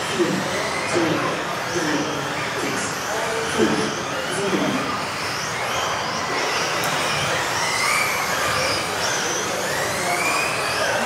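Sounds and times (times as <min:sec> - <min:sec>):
rc car motors whining: 0:00.0 - 0:11.0.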